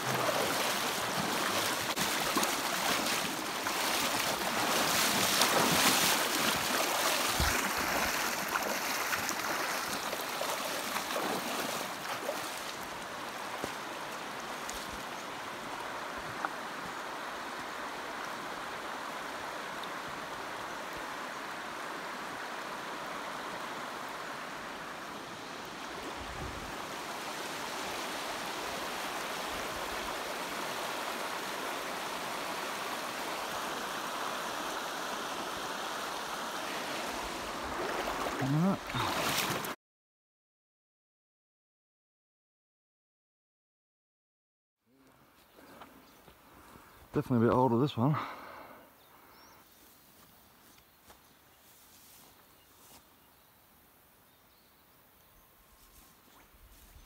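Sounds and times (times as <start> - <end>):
splashing of wading: 0.0 - 16.6, 35.6 - 39.8
river running over rocks: 0.0 - 39.8.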